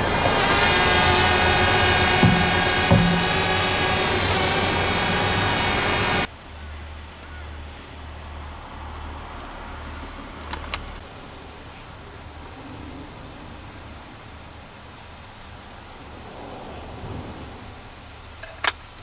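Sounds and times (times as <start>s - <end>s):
loud steady sound: 0.0s - 6.3s
truck engine rumble: 0.0s - 6.3s.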